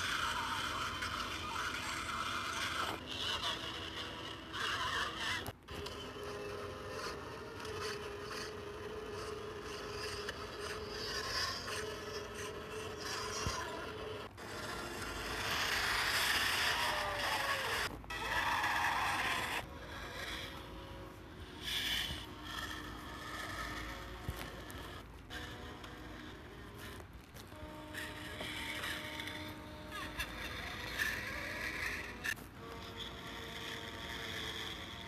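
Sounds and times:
creature screeching: 0:00.0 - 0:03.8, 0:14.6 - 0:20.6.

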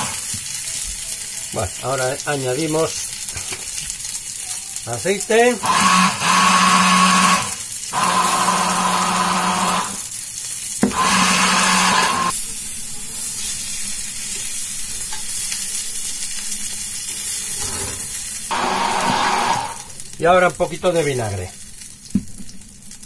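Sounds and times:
stick blender running: 0:00.0 - 0:00.3, 0:05.3 - 0:10.1, 0:10.8 - 0:12.3, 0:18.5 - 0:20.0
fish sizzling in frying pan: 0:00.0 - 0:23.0.

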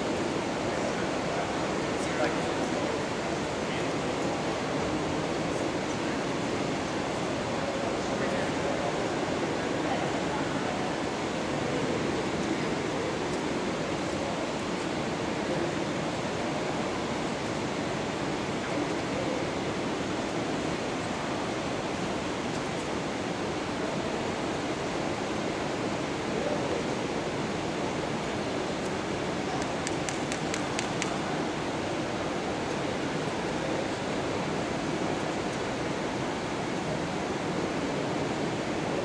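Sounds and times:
faint high clicks: 0:29.6 - 0:31.3.

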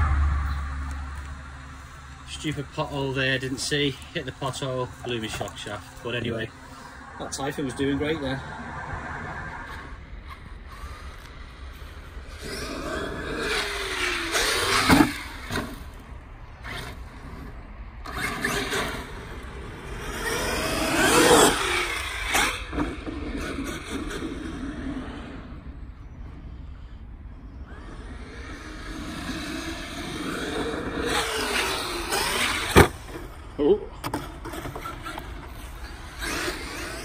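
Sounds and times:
toy car motor whine: 0:09.6 - 0:16.0, 0:16.6 - 0:25.6, 0:26.7 - 0:33.3, 0:34.2 - 0:37.0
tyre noise on dirt: 0:29.2 - 0:37.0.

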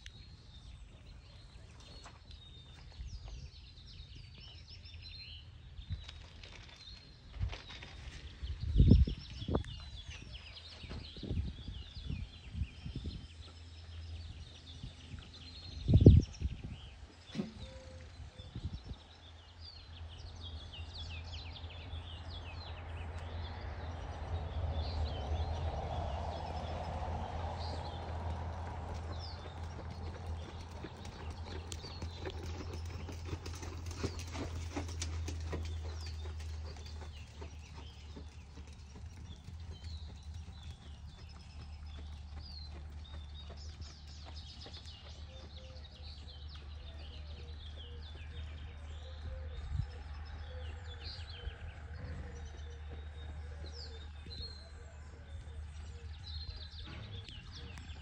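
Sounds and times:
wind buffeting microphone: 0:06.8 - 0:13.5, 0:14.2 - 0:17.0, 0:18.3 - 0:19.1
horse hooves on sand: 0:25.7 - 0:48.7
small birds chirping: 0:26.3 - 0:58.0.

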